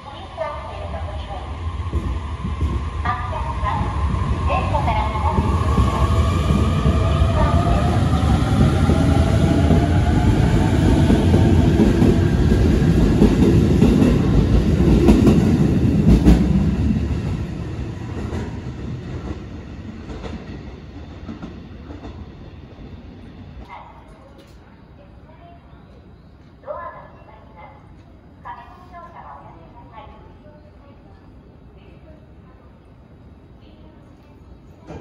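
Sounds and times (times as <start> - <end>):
train wheel rumble: 0.0 - 24.7.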